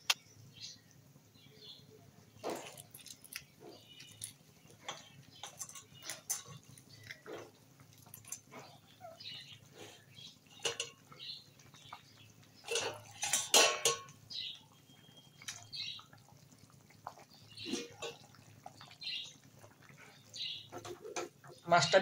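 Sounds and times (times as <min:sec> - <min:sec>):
metal spatula knocking pan: 0:12.7 - 0:14.1.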